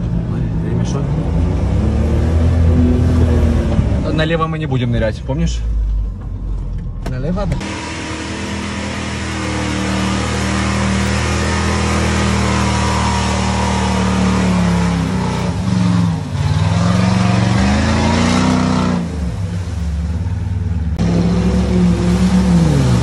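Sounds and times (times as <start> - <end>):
truck engine revving: 0.0 - 4.6, 7.6 - 23.0
mud and water spraying: 7.6 - 23.0.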